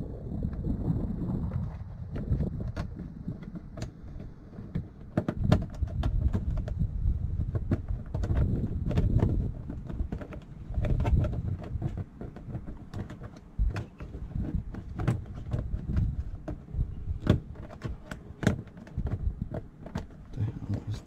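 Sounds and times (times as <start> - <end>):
low rumble: 0.0 - 3.3
plastic clicks and taps: 2.2 - 6.8.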